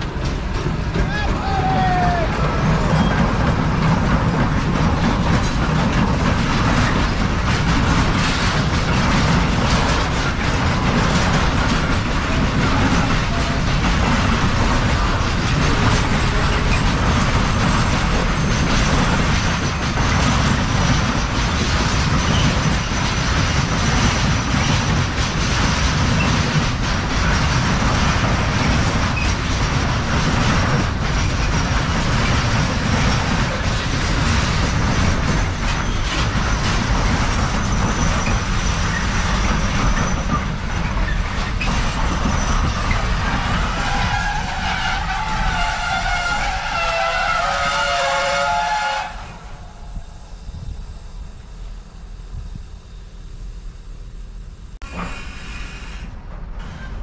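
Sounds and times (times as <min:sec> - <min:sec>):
freight train wagons rumbling: 0:00.0 - 0:57.0.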